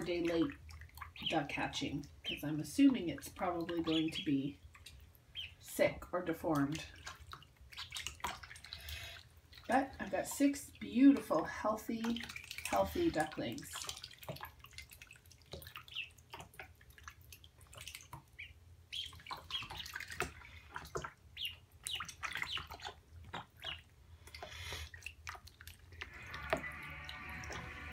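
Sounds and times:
water splashes and drips: 0:00.0 - 0:27.9
ducklings peeping: 0:00.2 - 0:05.7, 0:07.0 - 0:09.2, 0:15.6 - 0:16.6, 0:17.8 - 0:25.1, 0:26.0 - 0:27.9.

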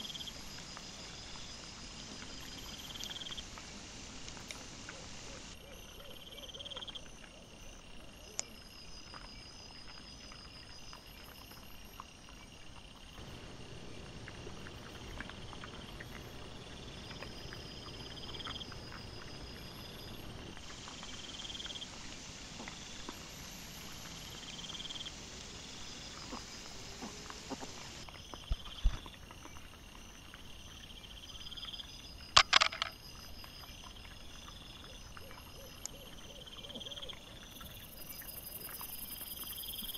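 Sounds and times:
night insects trilling: 0:00.0 - 0:39.9.

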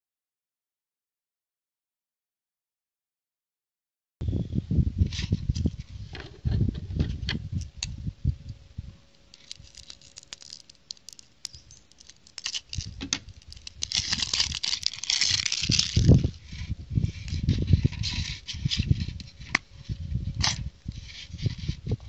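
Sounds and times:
low handling bumps: 0:05.2 - 0:08.9
plastic crinkling and tearing: 0:09.1 - 0:19.6.

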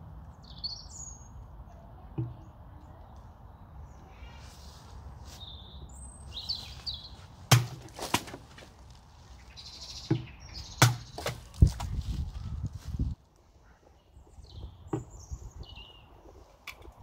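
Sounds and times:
birds chirping: 0:00.2 - 0:17.0
machete striking drink cans: 0:07.5 - 0:08.4, 0:10.8 - 0:11.5.

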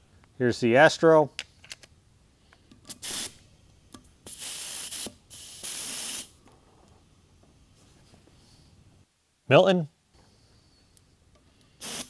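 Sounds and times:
compressed air hissing: 0:02.9 - 0:03.5, 0:04.2 - 0:06.4, 0:11.7 - 0:12.0.

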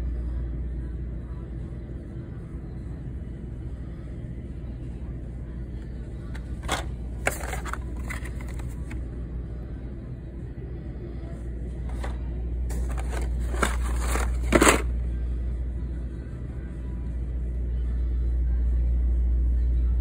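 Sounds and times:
plastic packs scraping and rustling: 0:07.2 - 0:09.0, 0:12.7 - 0:14.9.

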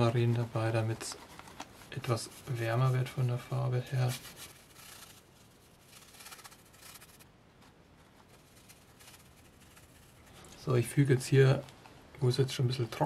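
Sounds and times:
paintbrush rubbing on canvas: 0:04.0 - 0:07.3, 0:08.0 - 0:10.3.

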